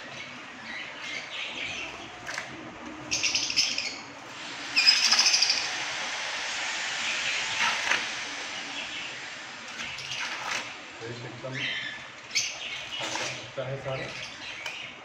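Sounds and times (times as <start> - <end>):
budgerigars chirping and chattering: 0.1 - 2.3, 3.0 - 4.1, 4.7 - 5.8, 11.4 - 15.0.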